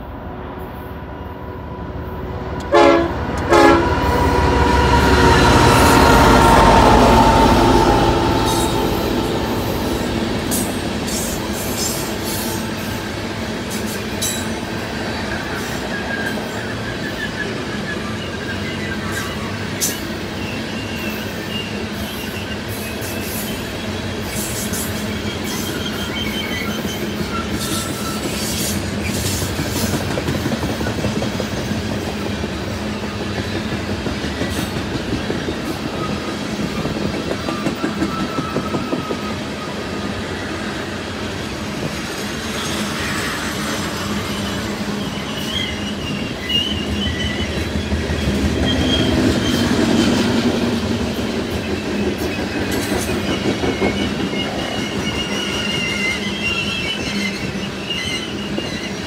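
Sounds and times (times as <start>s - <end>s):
steel wheels on rails: 2.6s - 59.0s
high wheel squeal: 3.8s - 14.2s, 15.3s - 29.4s, 37.4s - 40.5s, 42.2s - 50.4s, 51.6s - 59.0s.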